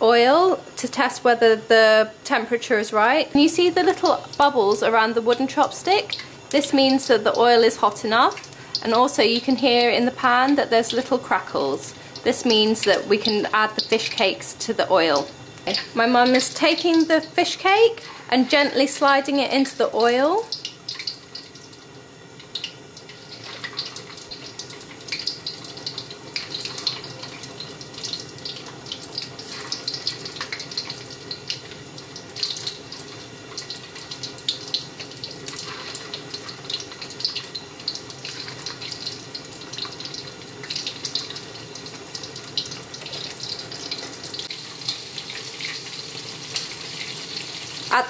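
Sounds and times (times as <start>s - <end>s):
food deep-frying in oil: 0.0s - 48.0s.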